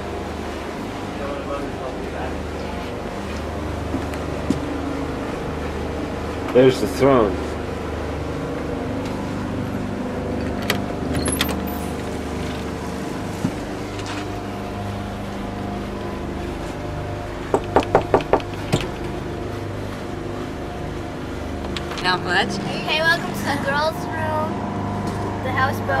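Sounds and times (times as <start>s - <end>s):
low mechanical drone: 0.0s - 26.0s
knocking on wooden door: 17.5s - 18.9s.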